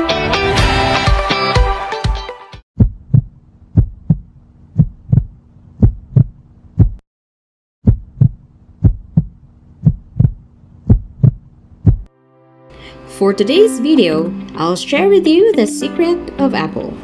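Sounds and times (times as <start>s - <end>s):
heartbeat thumps: 2.8s - 7.0s, 7.8s - 12.1s.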